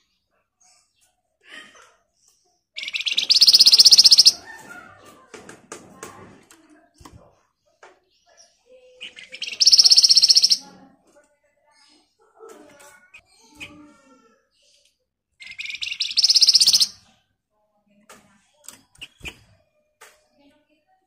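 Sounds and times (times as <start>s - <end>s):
soft bird chirps: 2.1s - 4.9s, 7.6s - 10.7s, 12.9s - 17.2s, 18.4s - 20.5s
songbird buzzing rattle-trills: 9.4s - 10.6s, 15.6s - 16.9s.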